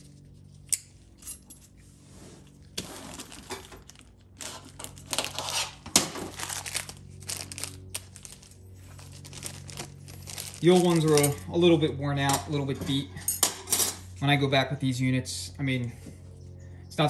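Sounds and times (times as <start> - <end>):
metal washers clinking: 0.6 - 1.8
plastic bag rustling: 2.0 - 11.5.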